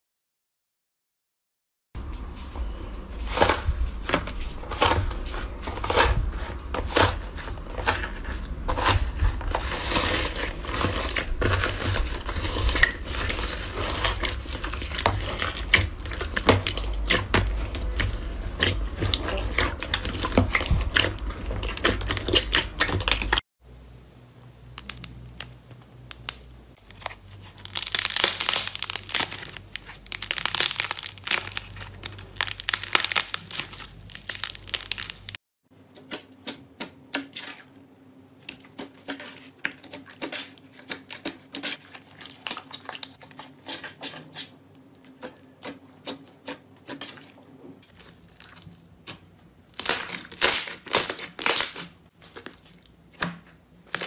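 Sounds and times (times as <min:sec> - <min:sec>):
slime squeezed crackling and popping: 0:26.1 - 0:35.4, 0:48.0 - 0:51.9.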